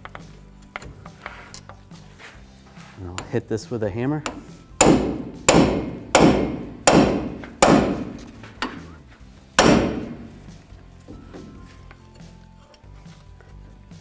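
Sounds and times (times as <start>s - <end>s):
hammer striking metal: 4.2s - 8.8s, 9.6s - 10.6s.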